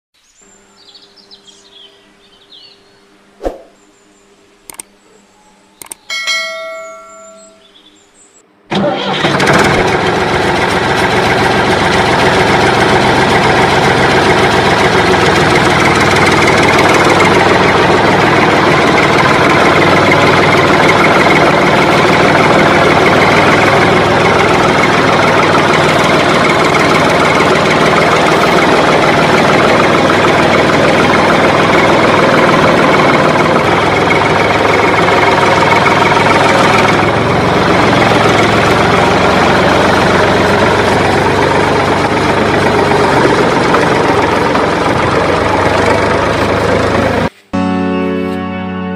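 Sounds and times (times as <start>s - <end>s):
tractor engine running: 0.7s - 3.0s, 3.8s - 48.9s
short ringing tone: 5.3s - 7.8s.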